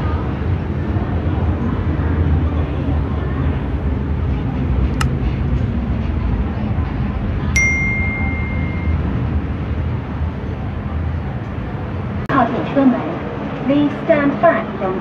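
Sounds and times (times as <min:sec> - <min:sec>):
bright ding: 0:07.6 - 0:09.2.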